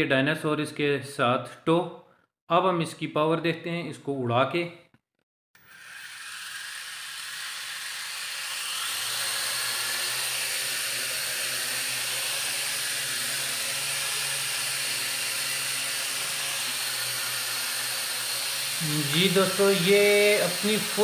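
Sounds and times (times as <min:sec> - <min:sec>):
toy drone motors whirring: 0:05.6 - 0:21.0.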